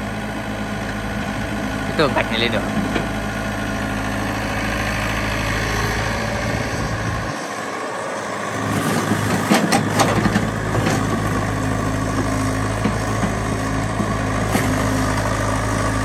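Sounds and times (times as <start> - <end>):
excavator diesel engine running: 0.0 - 16.0
excavator bucket knocks and clanks: 9.2 - 11.4.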